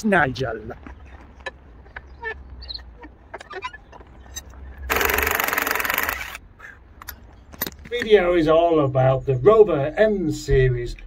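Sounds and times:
impact wrench hammering: 0:04.9 - 0:06.4.

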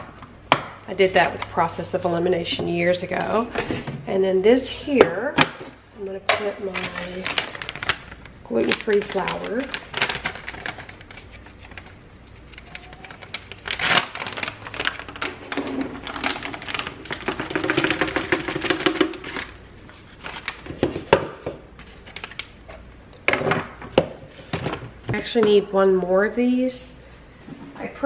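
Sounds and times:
flour bag crinkling: 0:06.6 - 0:20.7.

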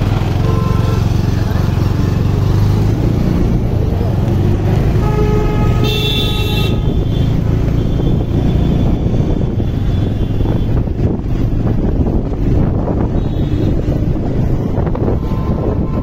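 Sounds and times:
motorcycle engine and road noise: 0:00.0 - 0:16.0
vehicle horn honking: 0:00.4 - 0:01.2, 0:05.0 - 0:10.8, 0:13.1 - 0:13.8.

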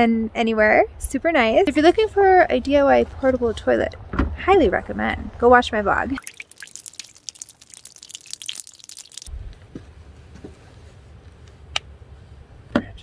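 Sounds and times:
wet hands rubbing together: 0:06.2 - 0:09.3.

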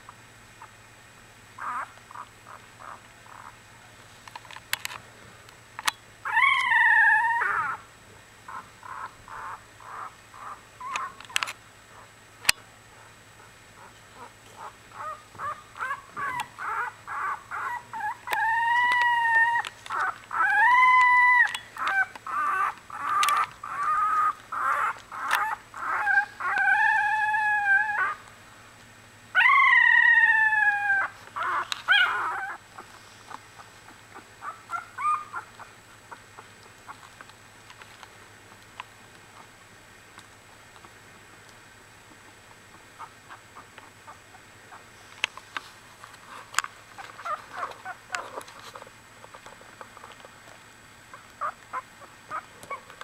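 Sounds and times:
puppies squeaking: 0:01.6 - 0:03.6, 0:06.2 - 0:07.8, 0:08.5 - 0:11.5, 0:13.4 - 0:28.2, 0:29.4 - 0:32.9, 0:33.6 - 0:35.7, 0:46.9 - 0:50.1, 0:51.1 - 0:52.9
puppies wailing cries: 0:01.6 - 0:03.6, 0:06.2 - 0:07.9, 0:08.5 - 0:12.1, 0:13.4 - 0:28.3, 0:29.3 - 0:33.0, 0:33.6 - 0:36.5, 0:46.9 - 0:50.2, 0:51.1 - 0:53.0.

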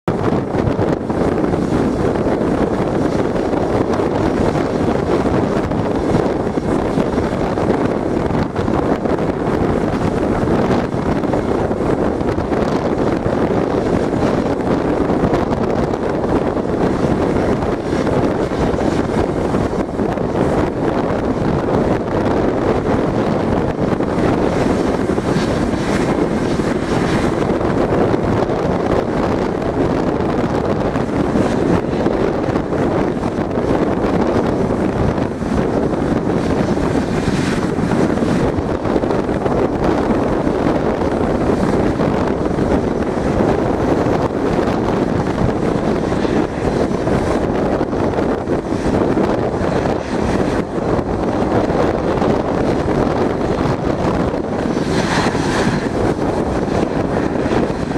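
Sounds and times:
wind buffeting microphone: 0:00.0 - 0:57.9
jet engines idling: 0:00.1 - 0:57.9.

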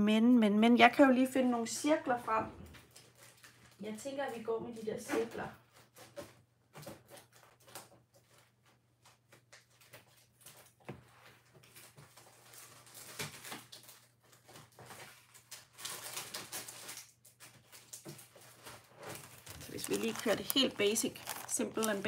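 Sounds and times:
hands rummaging through craft supplies: 0:11.0 - 0:22.0.

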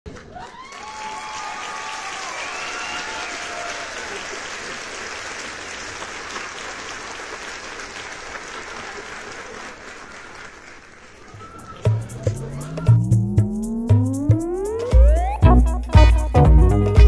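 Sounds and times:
crowd applauding: 0:00.1 - 0:13.3.

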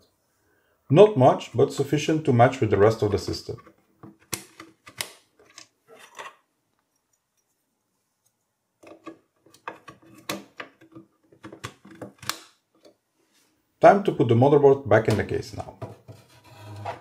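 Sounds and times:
plastic clicks of memory modules: 0:04.1 - 0:05.7.

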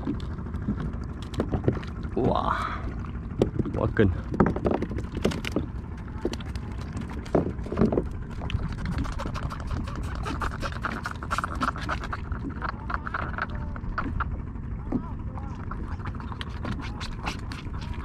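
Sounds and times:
wind rumble on microphone: 0:00.0 - 0:18.0
fish tails slapping plastic: 0:04.3 - 0:14.2.

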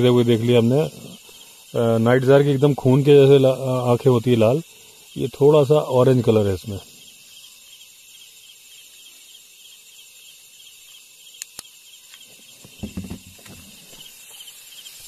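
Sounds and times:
crickets chirping: 0:00.0 - 0:15.0
sharp clicks: 0:11.4 - 0:11.8.

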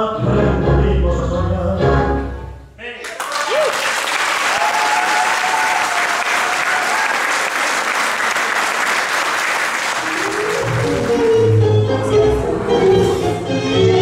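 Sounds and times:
tango music: 0:00.0 - 0:02.6, 0:10.0 - 0:14.0
audience applauding: 0:03.0 - 0:11.9.

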